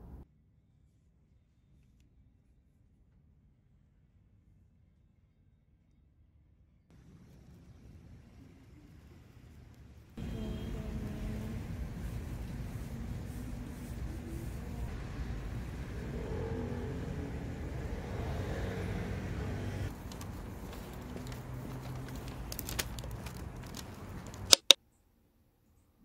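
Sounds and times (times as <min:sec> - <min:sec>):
low rumble of road traffic: 0:06.9 - 0:24.6
plastic bag crinkling: 0:19.9 - 0:24.7
sharp clicks: 0:22.5 - 0:24.8.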